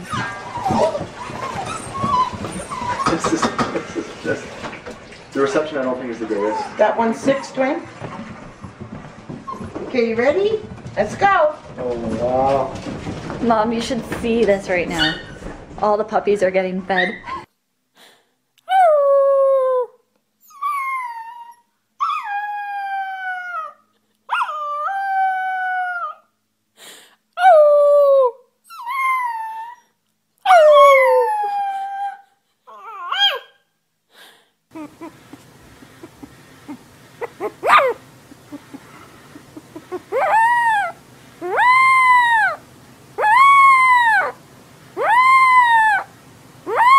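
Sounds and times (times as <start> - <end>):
puppy howling: 0.0 - 3.4, 6.3 - 7.8, 18.7 - 26.3, 27.4 - 33.6, 34.7 - 35.4, 36.0 - 38.8, 39.5 - 42.6, 43.2 - 44.4, 45.0 - 46.9
puppy sharp cry: 32.8 - 33.6, 36.0 - 38.7, 39.8 - 42.6, 43.2 - 44.4, 45.0 - 46.1, 46.7 - 46.9.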